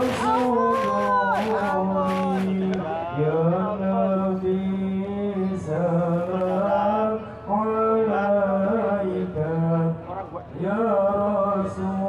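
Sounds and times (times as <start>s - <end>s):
person chanting: 0.0s - 4.8s.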